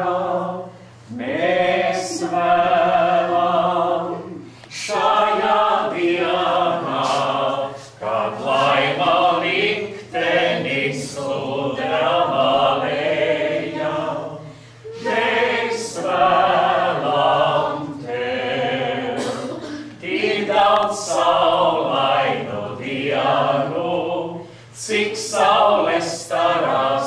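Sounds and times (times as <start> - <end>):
small group singing unaccompanied: 0.0 - 27.0
singers breathing: 14.4 - 14.9, 24.4 - 24.8.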